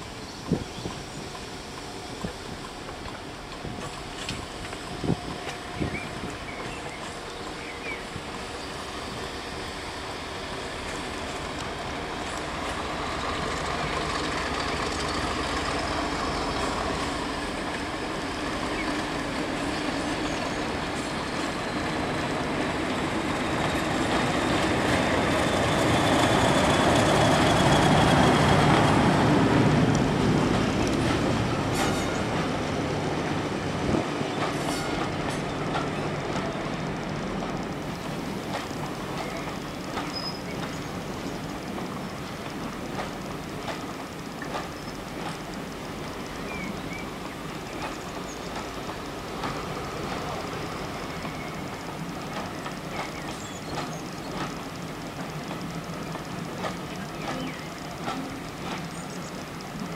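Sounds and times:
diesel locomotive engine passing: 0.0s - 59.9s
wheel clicks over rail joints: 34.3s - 59.9s.

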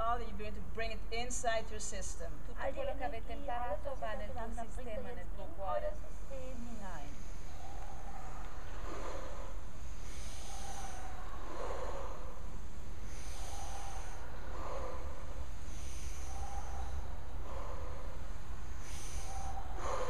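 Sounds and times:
steady low rumble: 0.0s - 20.0s
people breathing slowly: 6.1s - 20.0s.

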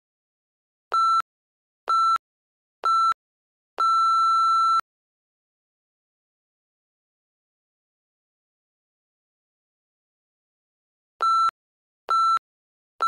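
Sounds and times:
timer beeps: 11.2s - 11.5s, 12.1s - 12.4s.

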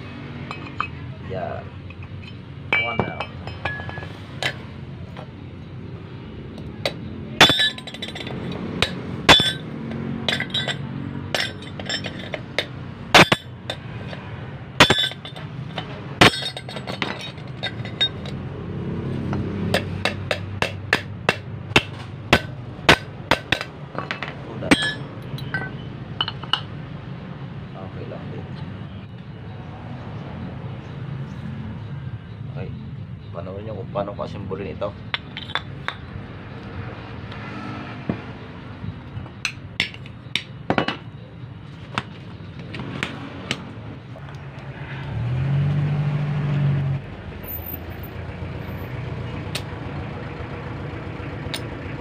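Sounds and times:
hammer tapping on metal: 19.4s - 26.7s.

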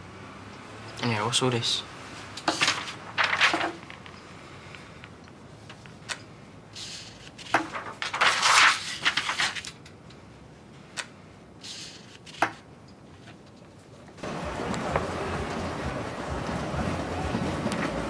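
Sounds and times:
street noise: 0.0s - 7.7s, 9.8s - 18.0s
clattering and rustling: 2.4s - 4.1s.

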